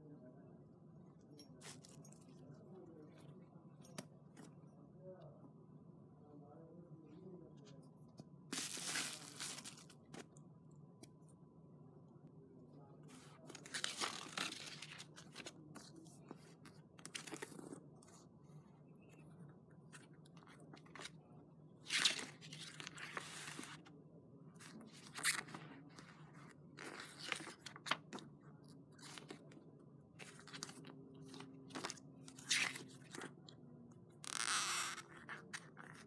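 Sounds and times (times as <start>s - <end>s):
paper pages rustling: 8.5s - 10.3s, 13.1s - 18.2s, 22.0s - 23.9s, 24.6s - 28.2s, 29.0s - 29.4s, 30.2s - 33.3s.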